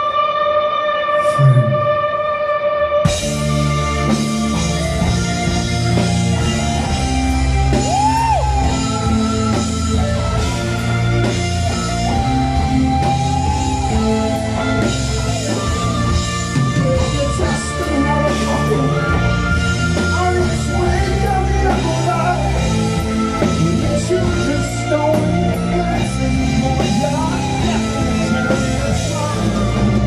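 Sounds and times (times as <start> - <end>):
bending guitar lead line: 0.0 - 30.0
rock band playing live: 0.0 - 30.0.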